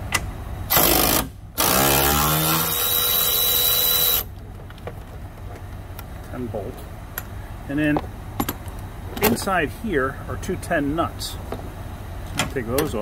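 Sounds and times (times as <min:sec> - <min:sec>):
power ratchet whining: 0:00.7 - 0:04.3.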